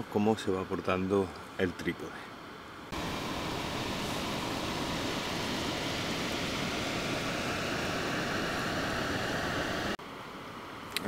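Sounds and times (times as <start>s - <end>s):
steady rushing noise: 2.9s - 10.0s.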